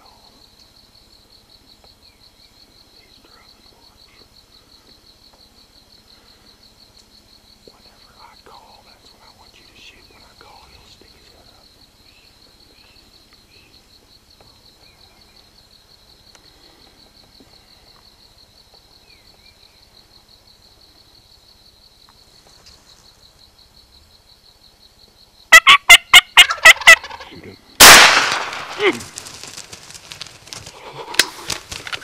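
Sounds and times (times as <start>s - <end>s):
turkey gobbling: 25.5s - 29.7s, 30.5s - 32.0s.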